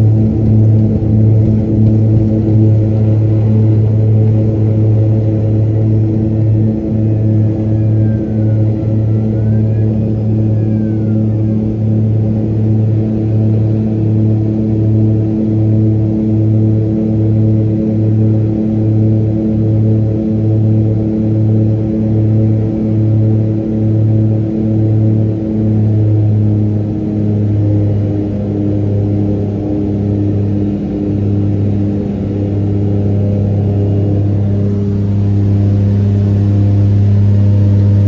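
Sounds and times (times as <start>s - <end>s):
propeller aircraft engines droning: 0.0s - 38.0s.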